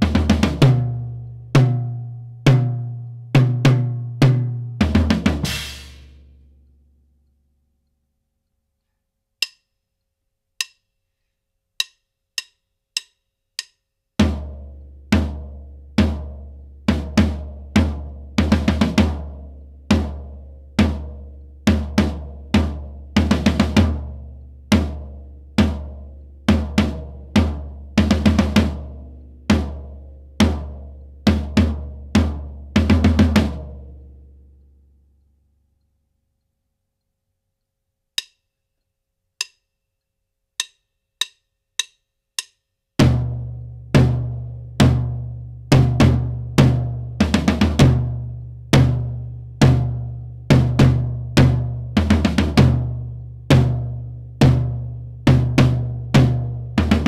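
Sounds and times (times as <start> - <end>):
floor tom and bass drum groove: 0.0 - 6.2, 11.8 - 33.9, 40.6 - 57.0.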